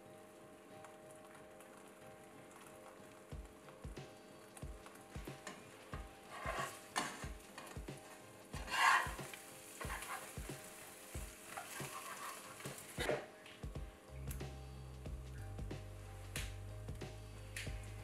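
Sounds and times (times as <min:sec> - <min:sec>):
egg sizzling in a frying pan: 0:00.0 - 0:13.2
spatula scraping a pan: 0:06.2 - 0:13.2.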